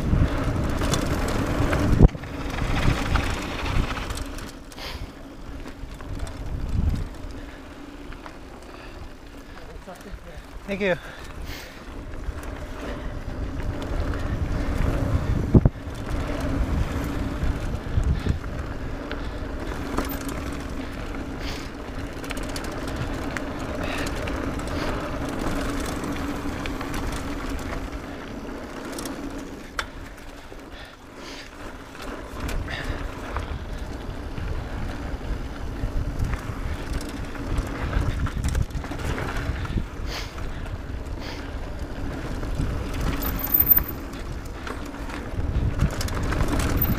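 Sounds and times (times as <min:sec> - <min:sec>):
wind buffeting microphone: 0:00.0 - 0:04.6, 0:05.4 - 0:08.0, 0:11.2 - 0:28.2, 0:32.3 - 0:46.9
tyres rolling over dirt: 0:00.0 - 0:46.9.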